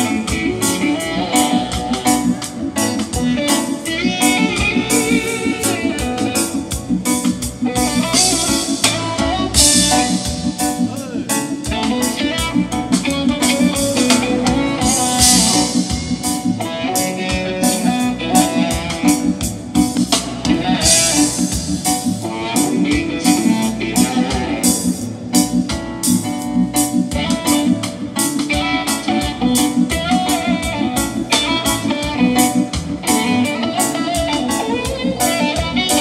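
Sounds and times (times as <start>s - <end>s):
drum kit beat: 0.0s - 36.0s
electric guitar: 0.0s - 36.0s
keyboard: 0.0s - 36.0s.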